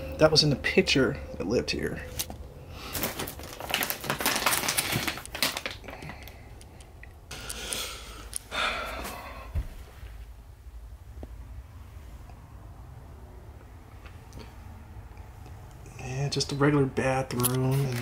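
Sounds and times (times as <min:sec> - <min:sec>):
rustling: 0:02.1 - 0:06.4.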